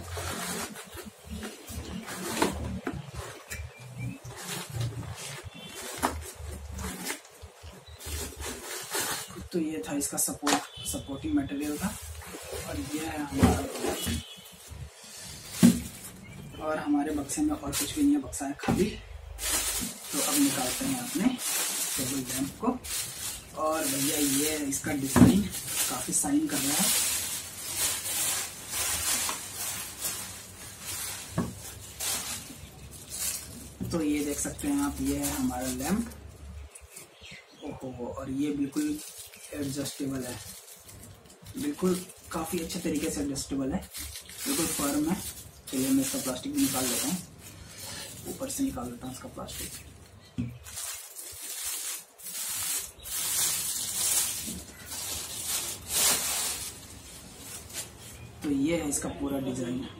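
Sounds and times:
plastic wrapping crinkling: 0.0s - 59.5s.

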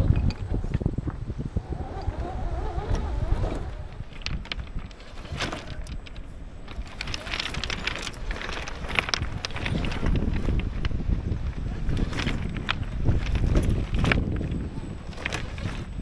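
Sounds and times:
electric motor whine: 0.8s - 6.0s
tyres crunching over pebbles: 3.2s - 16.0s.

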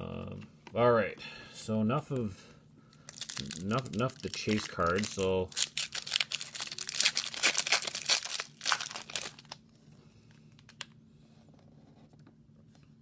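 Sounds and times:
foil wrapper tearing and crinkling: 3.1s - 9.6s.

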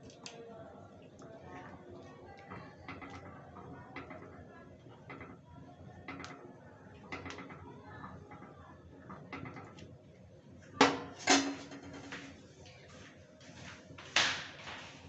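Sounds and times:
ladle clanging against pan: 10.8s - 12.2s.

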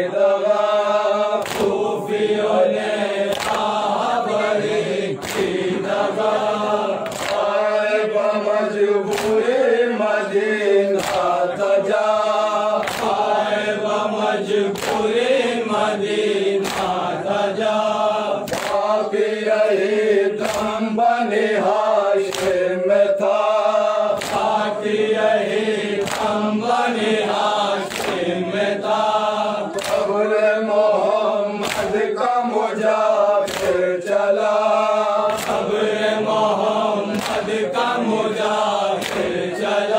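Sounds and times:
men chanting a lament: 0.0s - 39.9s
chest-beating slaps: 1.4s - 2.0s, 3.2s - 3.9s, 5.2s - 6.0s, 7.0s - 7.6s, 9.1s - 9.5s, 11.0s - 11.5s, 12.8s - 13.4s, 14.7s - 15.1s, 16.6s - 17.1s, 18.4s - 19.0s, 20.4s - 20.8s, 22.3s - 22.7s, 24.2s - 24.7s, 26.0s - 26.5s, 27.8s - 28.4s, 29.7s - 30.2s, 31.6s - 32.1s, 33.4s - 34.0s, 35.2s - 35.9s, 37.1s - 37.8s, 39.0s - 39.6s.

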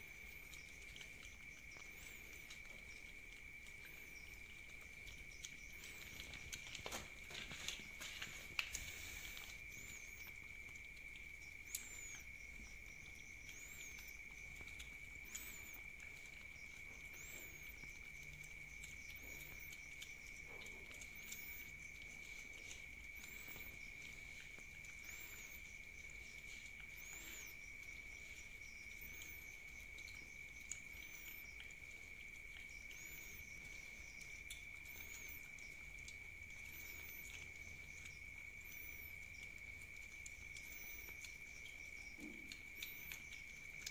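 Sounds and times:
cats licking and chewing: 0.0s - 43.9s
faint chirp: 0.0s - 43.9s
night insects trilling: 0.0s - 43.9s.

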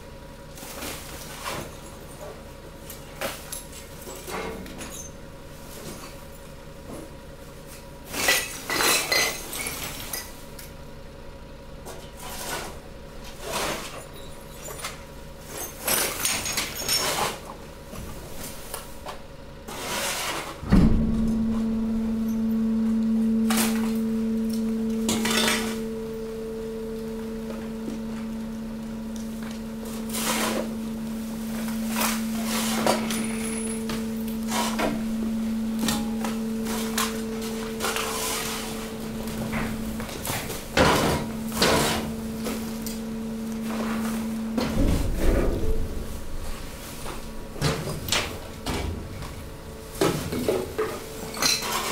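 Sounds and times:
hydraulic unit humming: 0.0s - 51.9s
hydraulic unit thump: 20.6s - 51.4s.

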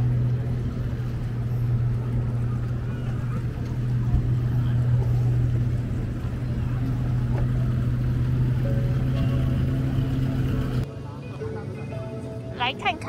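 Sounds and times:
boat engine idling: 0.0s - 10.9s.

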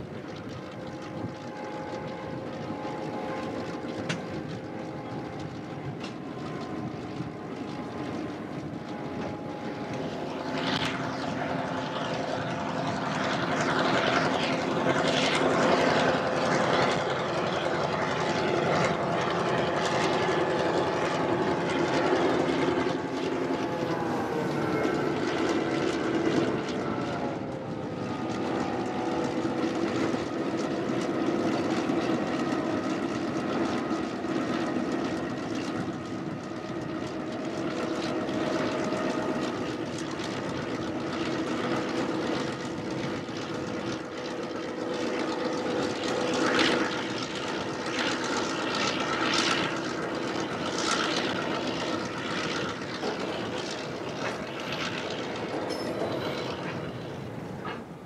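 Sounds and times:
diesel locomotive engine droning: 0.0s - 58.0s.

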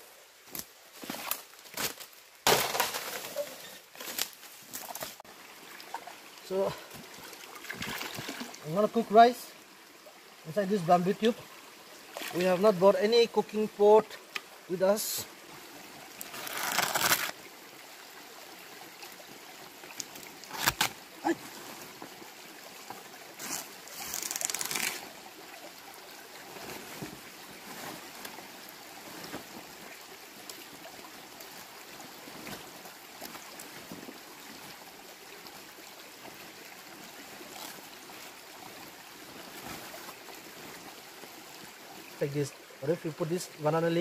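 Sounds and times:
running water: 0.0s - 44.0s
banana leaves rustling: 0.4s - 5.2s, 16.2s - 17.4s, 20.0s - 22.0s, 23.4s - 25.2s.

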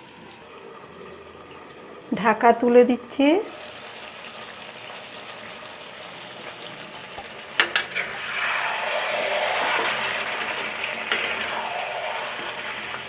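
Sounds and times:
curry sizzling in a pan: 0.0s - 13.0s
spoon scraping pan: 7.6s - 13.0s.

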